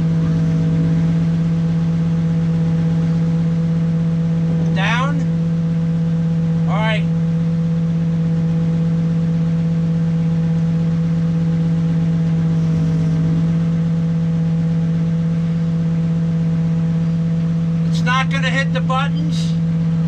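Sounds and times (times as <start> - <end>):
backhoe engine running: 0.0 - 20.0.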